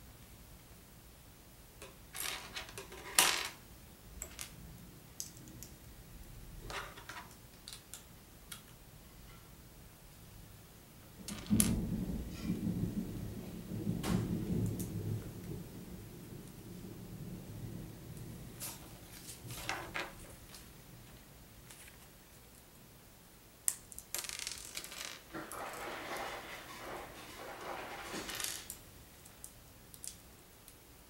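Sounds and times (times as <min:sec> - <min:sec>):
plastic bricks clicking and clattering: 0:23.9 - 0:28.8.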